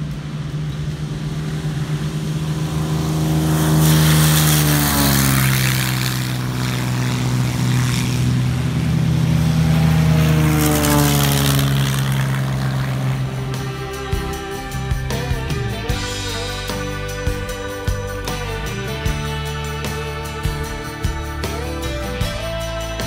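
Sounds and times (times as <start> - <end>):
airplane engines at full power: 0.0 - 23.0.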